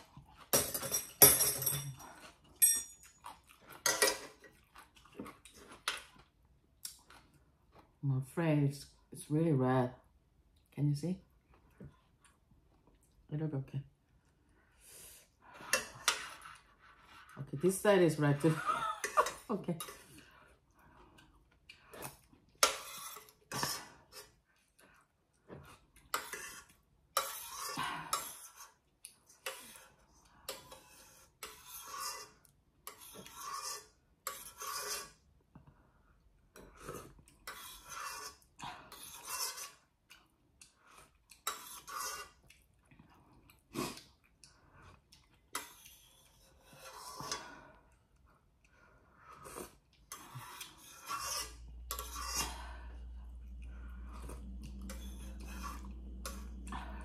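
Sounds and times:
chewing: 0:02.1 - 0:08.0, 0:39.0 - 0:46.5, 0:47.9 - 0:57.0
metal spoon scraping pot: 0:15.6 - 0:20.1, 0:22.6 - 0:24.4, 0:26.1 - 0:28.8, 0:29.4 - 0:35.2, 0:36.6 - 0:39.8, 0:41.4 - 0:42.4, 0:45.5 - 0:47.6, 0:49.4 - 0:57.0
low hum: 0:51.4 - 0:57.0.

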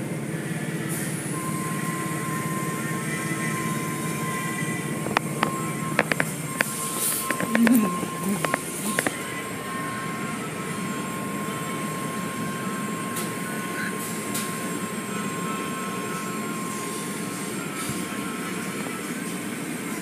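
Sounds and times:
machinery noise: 0:00.0 - 0:20.0
thin steady whine: 0:00.0 - 0:20.0.

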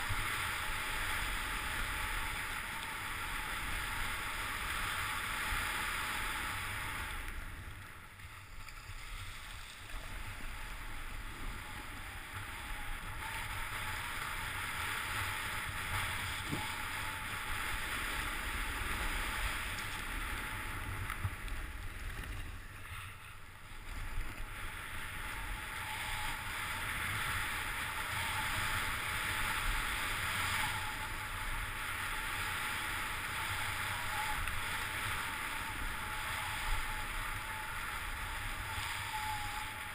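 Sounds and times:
skis hissing over snow: 0:00.0 - 0:39.9
wind on microphone: 0:09.2 - 0:39.9.

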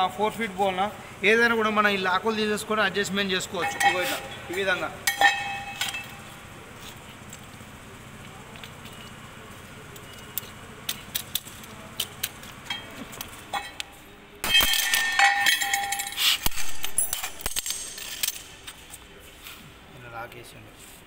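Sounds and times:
metal tines clinking and clanking: 0:00.0 - 0:19.1.

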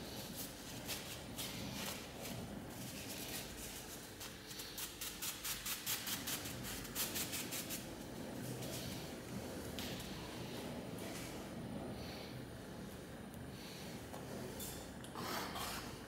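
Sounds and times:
paper towel rubbing on stone: 0:02.8 - 0:07.9.

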